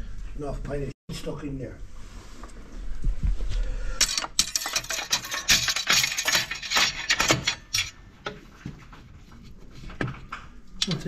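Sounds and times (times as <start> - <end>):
pry bar clinking on metal: 4.0 - 8.0.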